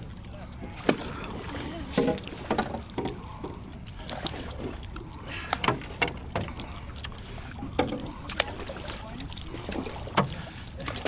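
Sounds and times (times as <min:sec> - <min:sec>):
paddles stroking through water: 0:00.0 - 0:11.0
rushing water: 0:00.0 - 0:11.0
sharp splashes: 0:04.0 - 0:11.0.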